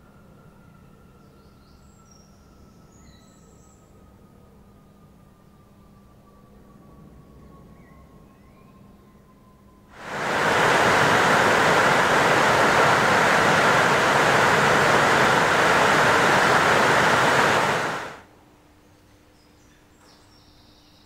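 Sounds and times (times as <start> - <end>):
loud steady hiss: 10.0 - 18.2.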